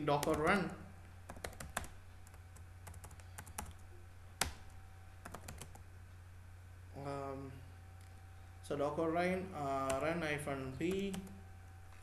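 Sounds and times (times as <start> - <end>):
steady low hum: 0.0 - 12.0
keyboard keys clicking: 1.3 - 3.8, 5.2 - 5.8.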